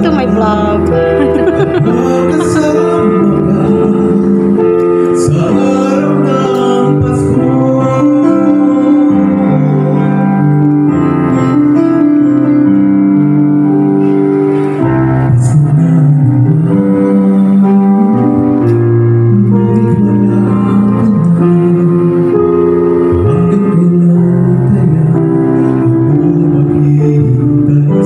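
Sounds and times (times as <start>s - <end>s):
keyboard chords: 0.0s - 28.0s
man singing into microphone: 0.0s - 28.0s.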